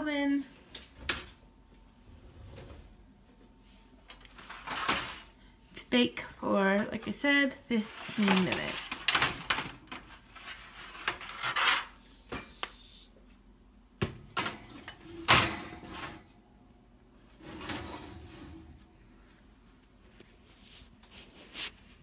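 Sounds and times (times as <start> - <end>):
tray scraping along oven rack: 7.7 - 9.4, 10.1 - 12.0, 17.3 - 19.1
oven door opening: 14.3 - 16.3, 17.4 - 19.0.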